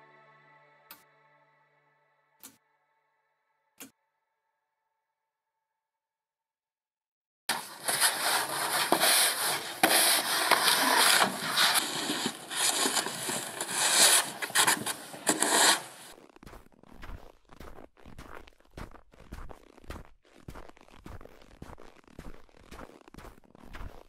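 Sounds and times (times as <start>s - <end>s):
snow shovel scraping snow: 7.5s - 16.2s
footsteps crunching in snow: 7.5s - 24.0s.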